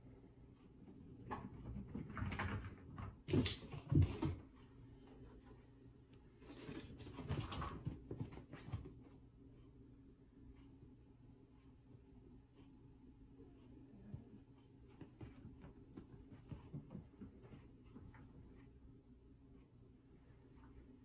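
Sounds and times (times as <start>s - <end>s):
kittens rustling on fabric: 13.8s - 18.7s.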